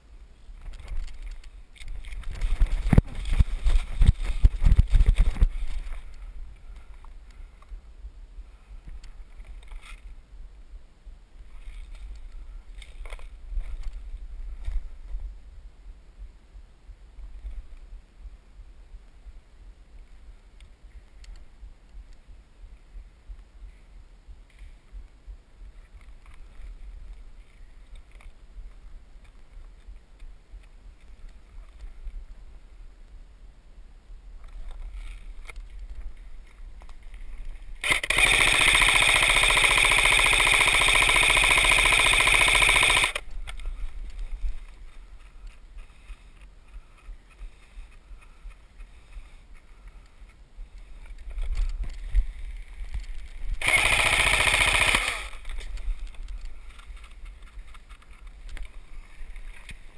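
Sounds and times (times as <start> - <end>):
airsoft rifle firing full auto: 37.8 - 43.3, 53.6 - 55.5.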